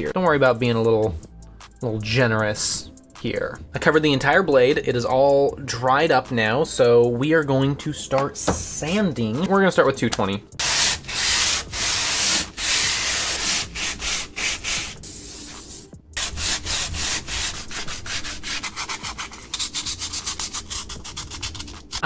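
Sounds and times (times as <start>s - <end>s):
sandpaper rubbing on plastic: 10.6s - 22.0s.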